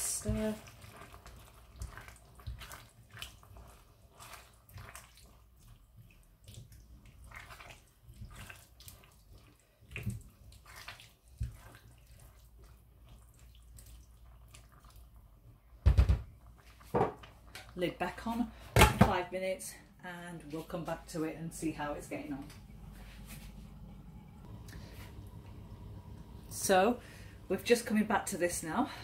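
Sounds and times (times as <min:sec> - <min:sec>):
spoon stirring curry: 0:00.2 - 0:15.7.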